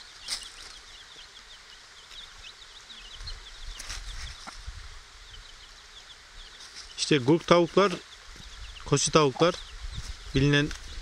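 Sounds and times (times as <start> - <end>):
chicks peeping: 0.0 - 11.0.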